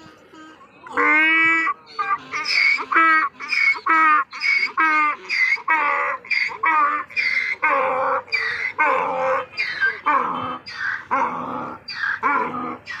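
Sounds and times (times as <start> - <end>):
donkey braying: 0.0 - 13.0.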